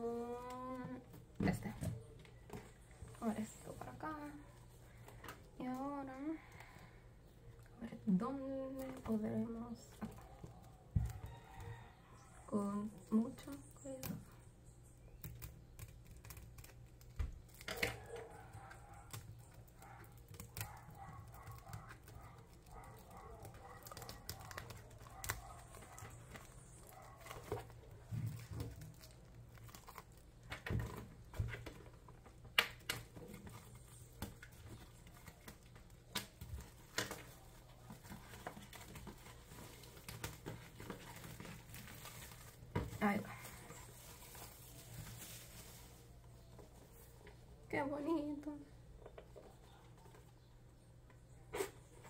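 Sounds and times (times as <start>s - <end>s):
shrink wrap crinkling and tearing: 12.7s - 47.2s.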